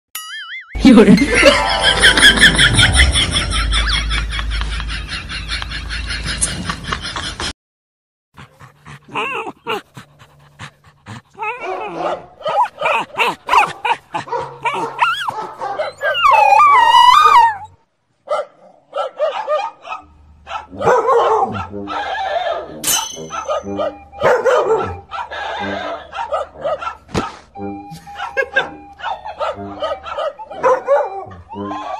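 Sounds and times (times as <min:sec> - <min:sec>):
dog barking and whining: 0:08.4 - 0:31.9
dog crying high-pitched: 0:08.8 - 0:10.4, 0:11.4 - 0:17.8, 0:21.4 - 0:27.0, 0:27.8 - 0:31.9.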